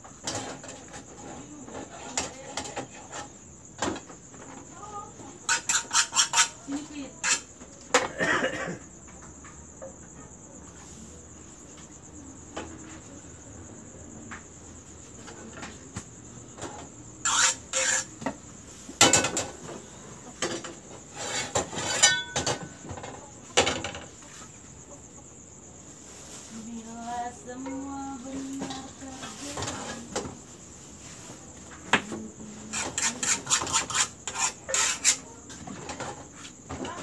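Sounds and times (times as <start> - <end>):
crickets chirring: 0.0 - 37.0
pans and ladle clattering: 20.4 - 24.1.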